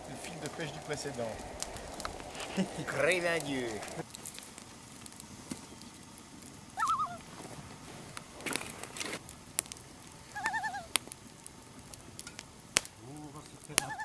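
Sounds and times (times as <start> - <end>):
campfire crackling and popping: 0.0 - 14.0
bird quavering calls: 6.8 - 7.3, 10.3 - 11.0, 13.8 - 14.0.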